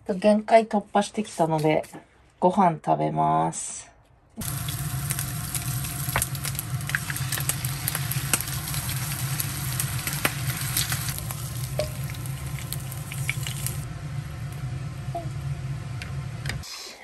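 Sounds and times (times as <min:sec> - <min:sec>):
constant low hum: 0:04.0 - 0:16.7
food sizzling in a pan: 0:04.4 - 0:16.6.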